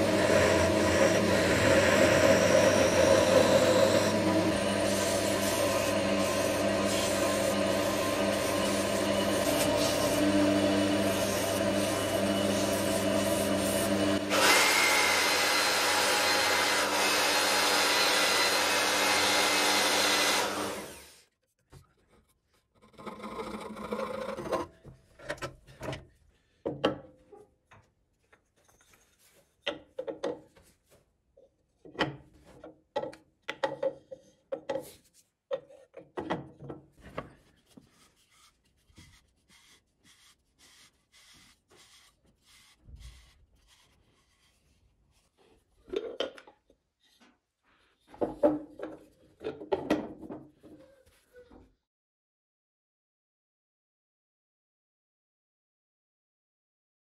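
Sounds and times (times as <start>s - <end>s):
wood lathe humming: 0.0s - 21.2s.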